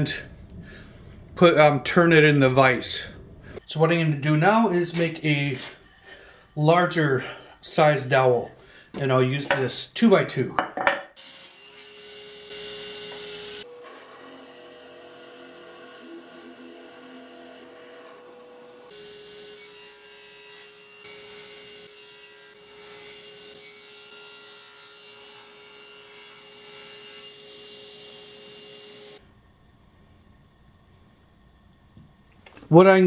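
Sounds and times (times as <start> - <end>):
rasp scraping wood: 4.9 - 6.6.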